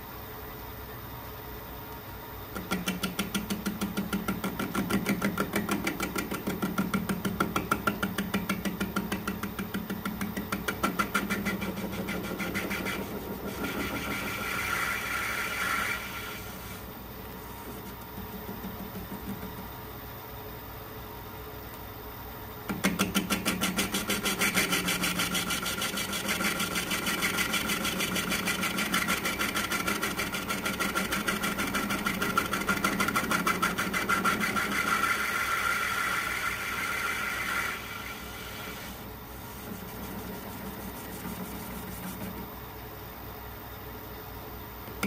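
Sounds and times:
lathe cutting metal pulsing: 11.1 - 16.7, 23.7 - 38.9.

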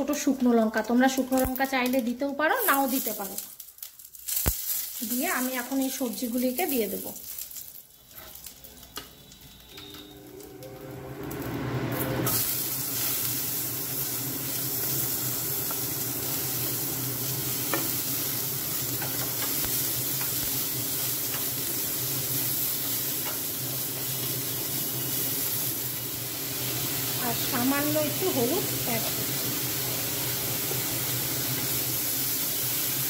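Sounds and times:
vegetables sizzling in hot oil: 0.0 - 33.0.

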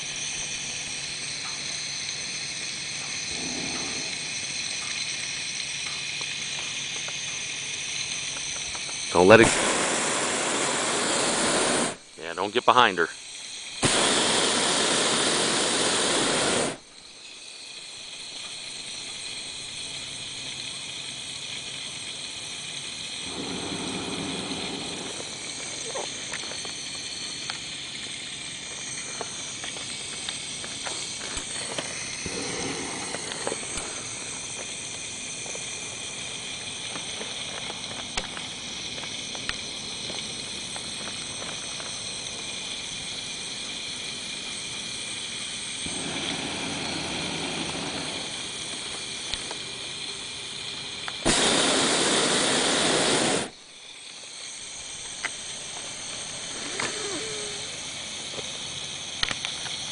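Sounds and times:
balloon burner roaring: 0.0 - 5.7, 7.6 - 12.5, 13.8 - 16.9, 22.4 - 37.4, 42.1 - 53.6, 54.7 - 59.8
quiet hiss with faint high tones: 0.0 - 59.9.

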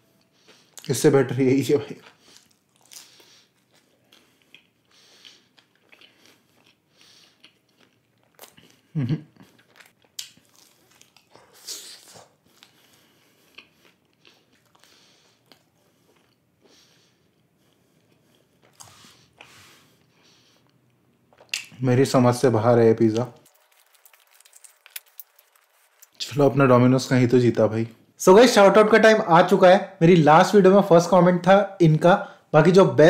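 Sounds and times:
wet chewing of pizza: 1.9 - 21.7, 23.4 - 26.3.

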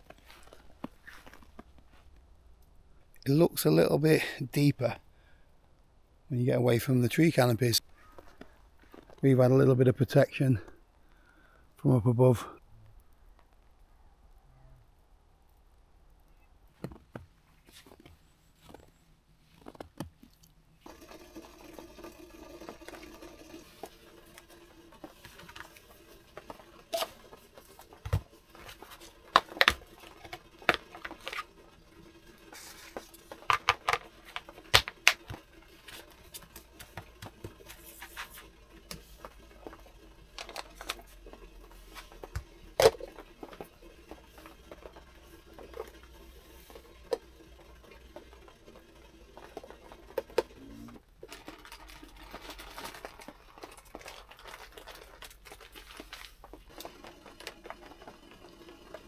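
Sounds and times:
kitchen items clicking and knocking: 20.9 - 59.0.

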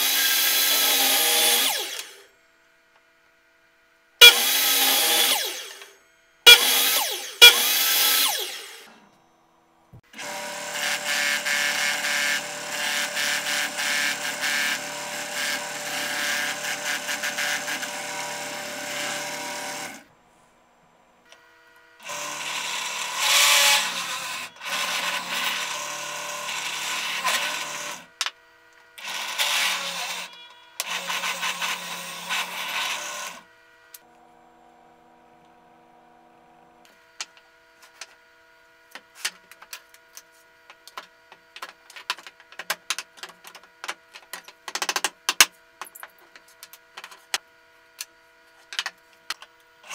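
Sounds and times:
mitre saw cuts: 0.0 - 2.3, 4.2 - 5.9, 6.5 - 8.9, 10.1 - 20.0, 22.0 - 28.1, 29.0 - 34.2
drill press runs: 4.2 - 9.2, 10.1 - 20.1, 21.3 - 38.2.

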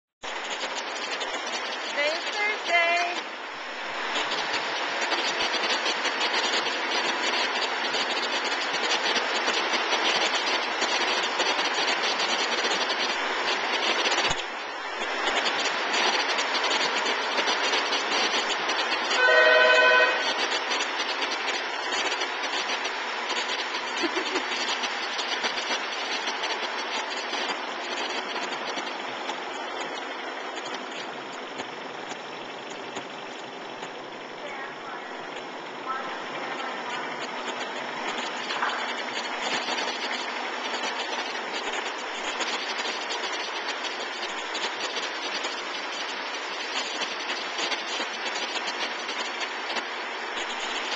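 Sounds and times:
loud beep-like tone: 19.1 - 20.4.

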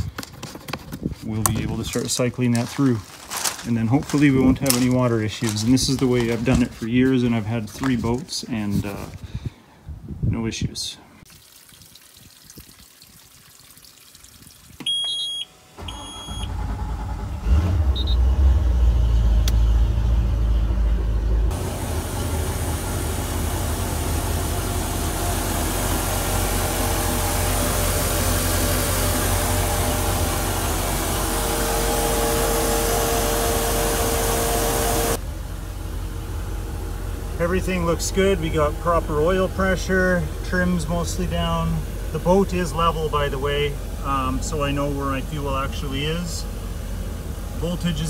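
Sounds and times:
short electronic beeps: 14.8 - 16.5
boat engine cranking and idling: 14.8 - 19.8, 20.6 - 48.0.

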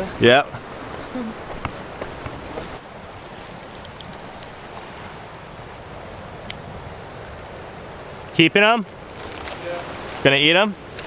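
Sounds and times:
ocean surf: 0.0 - 11.0
faint high clicks: 3.3 - 4.3.

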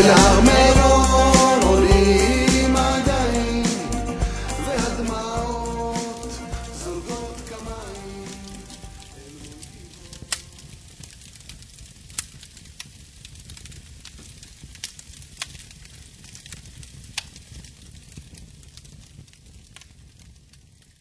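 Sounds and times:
record surface hiss and rumble: 0.0 - 21.0
vinyl crackles and clicks: 6.0 - 21.0.

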